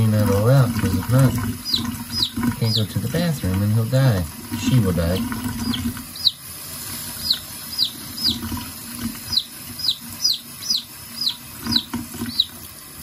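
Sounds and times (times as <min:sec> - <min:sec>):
tap running into a sink: 0:00.0 - 0:13.0
chick peeping: 0:01.2 - 0:03.0, 0:05.1 - 0:06.4, 0:07.1 - 0:08.5, 0:09.2 - 0:12.6.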